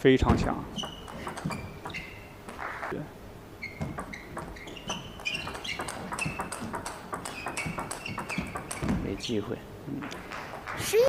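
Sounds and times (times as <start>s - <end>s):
shoes squeaking on floor: 0.4s - 11.0s
table tennis ball clicking: 0.8s - 2.2s, 3.6s - 9.3s.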